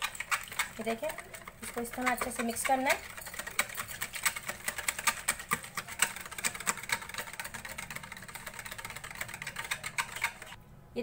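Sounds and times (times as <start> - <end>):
spoon stirring thick dressing: 0.0 - 10.6.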